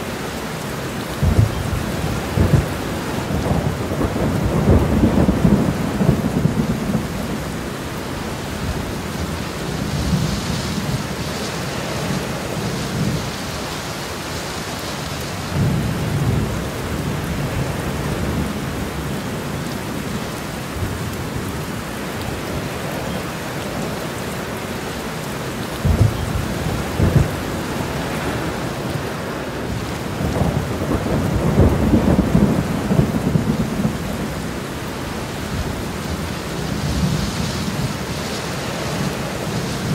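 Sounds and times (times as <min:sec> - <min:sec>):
heavy rain: 0:00.0 - 0:39.9
rolling thunder: 0:01.1 - 0:07.6, 0:25.8 - 0:29.0, 0:29.6 - 0:38.2
sharp thunderclaps: 0:01.2 - 0:07.1, 0:25.8 - 0:27.5, 0:30.2 - 0:34.0.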